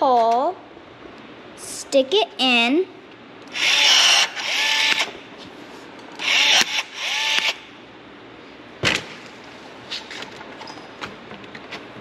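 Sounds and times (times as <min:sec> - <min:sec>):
rivet tool motor whirring: 0:03.5 - 0:05.2, 0:06.2 - 0:07.6.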